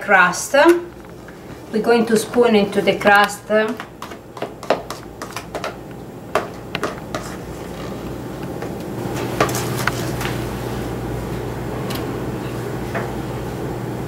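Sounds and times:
spatula scraping metal bowl: 6.7s - 8.0s.

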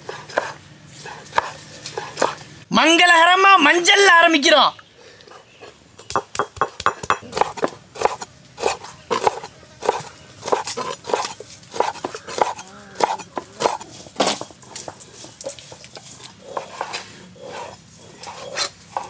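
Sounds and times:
knife knocking on wooden board: 6.0s - 7.2s.

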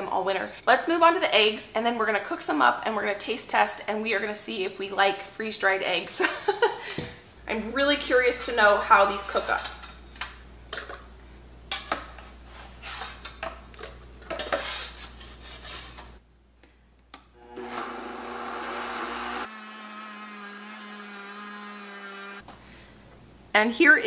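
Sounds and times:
metal spatula scraping metal tray: 12.5s - 13.4s, 14.3s - 16.1s
blender running: 17.4s - 22.4s.

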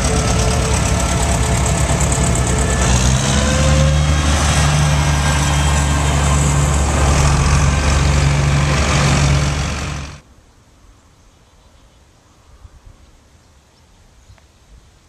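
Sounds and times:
tractor engines driving past: 0.0s - 10.2s.

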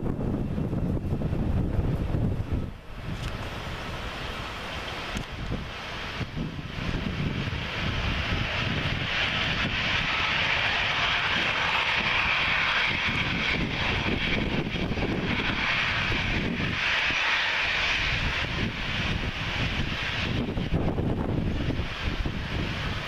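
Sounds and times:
jet engines running: 0.0s - 23.0s
wind buffeting microphone: 0.0s - 23.0s.

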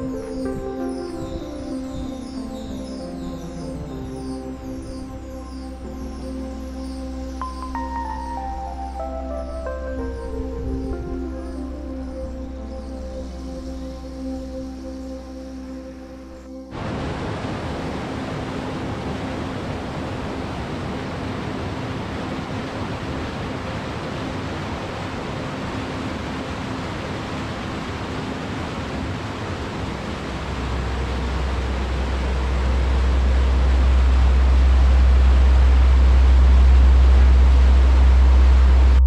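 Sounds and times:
rapids rushing: 16.7s - 39.0s
deep low rumble: 30.4s - 39.0s.

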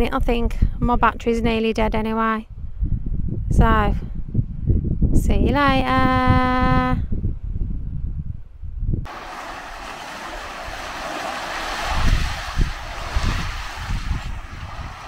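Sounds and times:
wind buffeting microphone: 0.0s - 15.0s
sea waves washing over rocks: 9.1s - 15.0s.

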